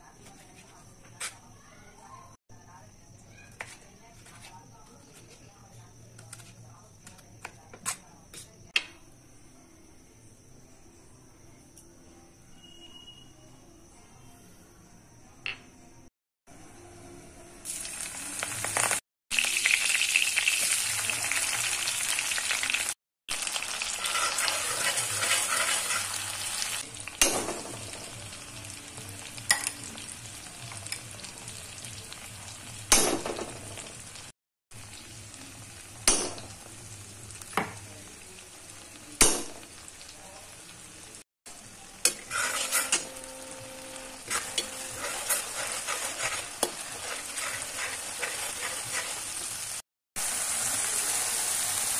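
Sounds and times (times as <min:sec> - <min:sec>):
vegetables sizzling in hot oil: 0:17.6 - 0:51.9
metal spatula scraping a pan: 0:23.7 - 0:26.8, 0:42.0 - 0:49.7.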